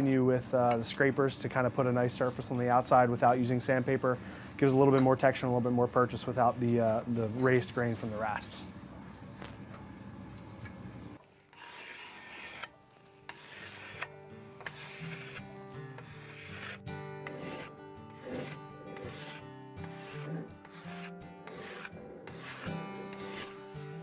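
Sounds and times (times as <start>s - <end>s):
scraper scraping wood: 11.5s - 23.6s
background music: 13.3s - 24.0s.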